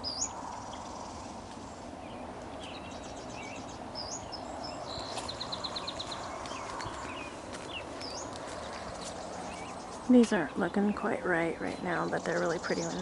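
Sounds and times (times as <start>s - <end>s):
bird trill: 0.0s - 1.2s, 2.1s - 8.3s
songbirds chirping: 0.0s - 13.0s
steady outdoor hiss: 0.0s - 13.0s.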